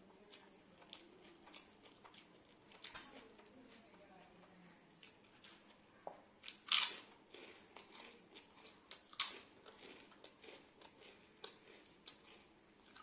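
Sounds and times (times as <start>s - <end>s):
person chewing food: 0.3s - 3.5s, 5.0s - 5.8s, 6.4s - 13.0s
crunchy bites: 6.4s - 13.0s.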